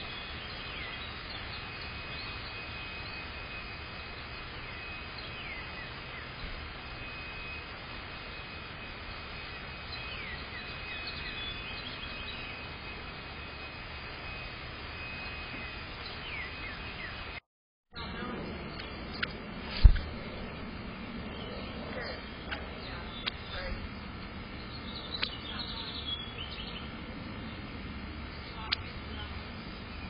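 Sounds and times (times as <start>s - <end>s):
faint steady high tone: 0.0s - 17.4s.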